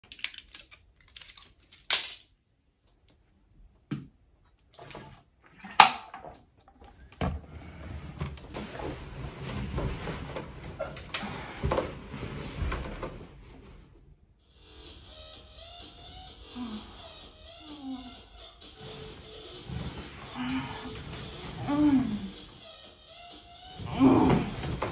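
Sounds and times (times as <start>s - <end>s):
blister pack crackling clicks: 0.0s - 2.3s
steady rustling: 7.4s - 14.1s.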